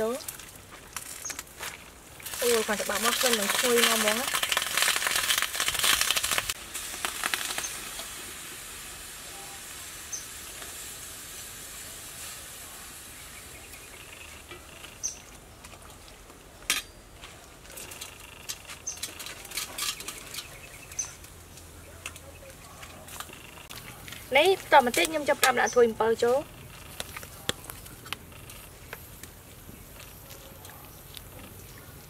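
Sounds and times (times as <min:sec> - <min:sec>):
soup pot steaming hiss: 0:02.1 - 0:14.7.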